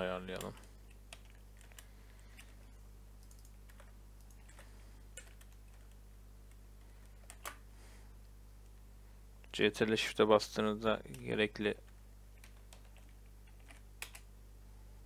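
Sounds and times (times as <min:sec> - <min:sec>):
steady low hum: 0:00.0 - 0:15.0
keyboard keystrokes: 0:03.2 - 0:06.0, 0:12.4 - 0:14.3.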